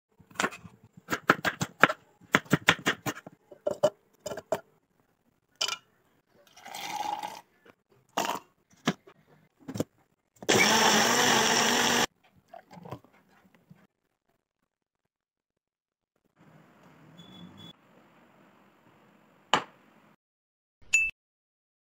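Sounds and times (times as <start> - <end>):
blender running: 10.5 - 12.1.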